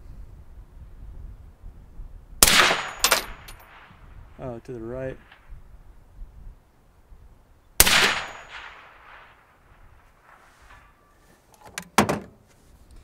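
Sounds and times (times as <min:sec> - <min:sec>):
suppressed rifle shot: 0:02.4 - 0:04.0, 0:07.8 - 0:10.4.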